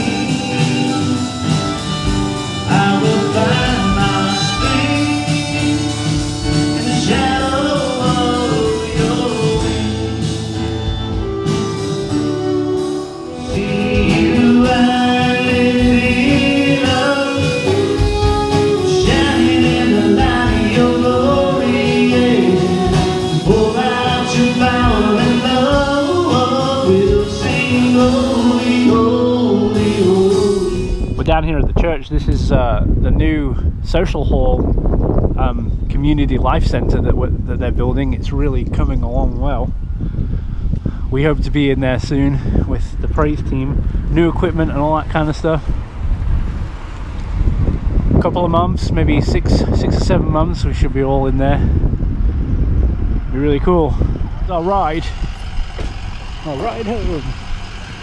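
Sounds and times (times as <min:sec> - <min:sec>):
voices singing over band: 0:00.0 - 0:11.2, 0:13.2 - 0:31.2.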